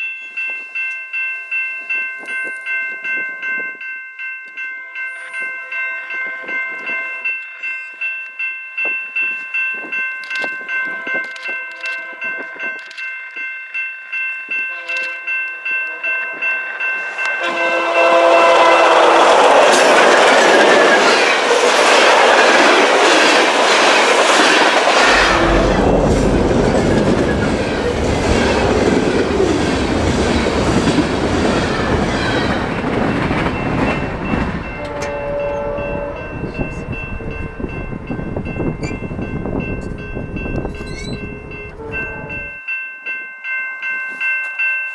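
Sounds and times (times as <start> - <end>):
level-crossing bell ringing: 0.0 - 44.9
locomotive horn: 14.7 - 15.3, 17.3 - 19.9, 25.0 - 26.4, 34.7 - 36.6, 41.7 - 42.5
train wheels clattering over rails: 18.9 - 35.2.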